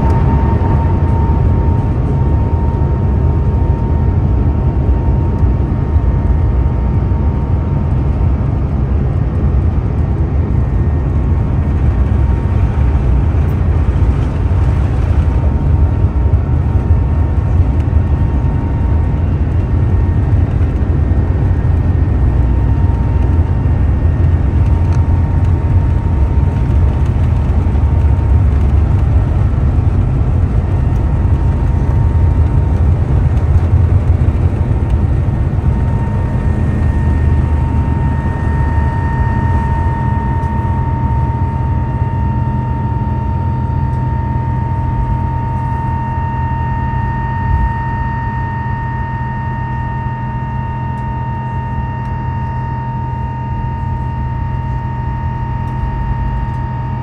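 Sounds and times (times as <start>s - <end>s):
faint thin whine: 0.0s - 4.3s, 10.6s - 57.0s
jet cabin engine rumble: 0.0s - 57.0s.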